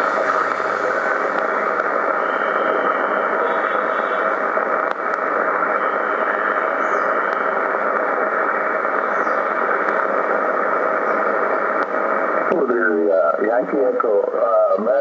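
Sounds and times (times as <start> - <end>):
radio receiver hissing: 0.0 - 15.0
faint clicks: 4.7 - 5.3.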